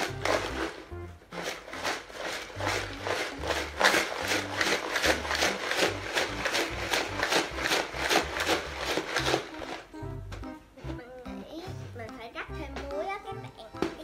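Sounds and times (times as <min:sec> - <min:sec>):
ice rattling in plastic jar: 0:00.0 - 0:09.9
background music: 0:00.0 - 0:14.0.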